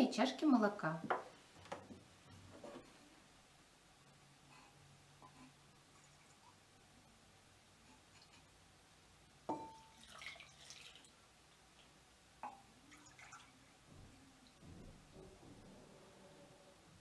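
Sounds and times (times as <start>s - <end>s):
earthenware clinks: 9.5s - 10.0s
milk pouring splash: 9.6s - 11.2s, 11.8s - 13.6s.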